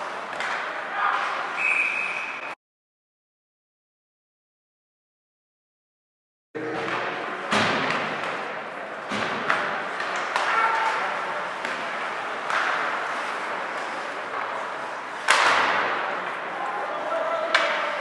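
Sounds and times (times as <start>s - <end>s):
skating and arena noise: 0.0s - 2.6s, 6.6s - 18.0s
stick and puck knocks on boards: 9.1s - 13.0s, 15.2s - 16.0s.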